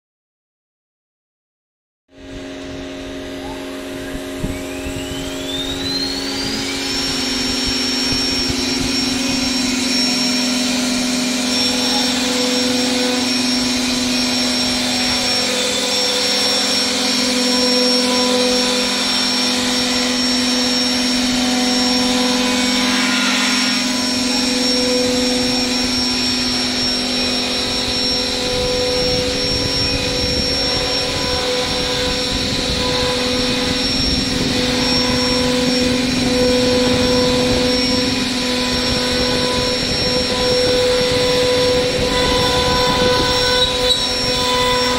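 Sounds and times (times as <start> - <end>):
machine hum: 2.1 - 44.9
router spindle whining: 2.1 - 44.9
bit cutting wood: 2.2 - 44.9.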